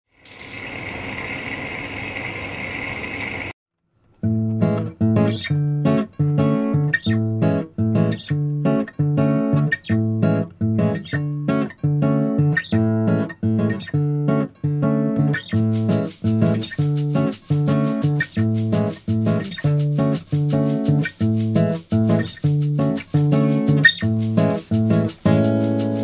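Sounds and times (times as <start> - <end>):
washing machine humming: 0.4 - 3.5
acoustic guitar strumming: 4.2 - 26.0.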